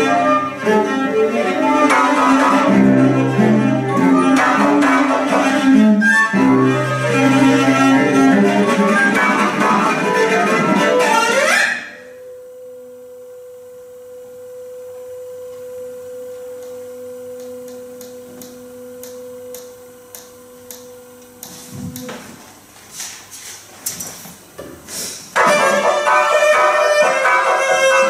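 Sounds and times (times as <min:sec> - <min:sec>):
cello and organ playing: 0:00.0 - 0:11.9, 0:25.4 - 0:28.0
held organ pipe tone: 0:00.0 - 0:12.8, 0:25.4 - 0:28.0.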